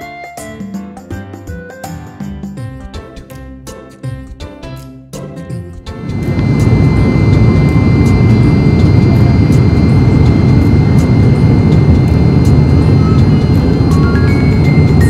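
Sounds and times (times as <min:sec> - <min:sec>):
music: 0:00.0 - 0:15.0
airliner cabin engine rumble: 0:05.9 - 0:15.0
thin high whine: 0:06.0 - 0:15.0.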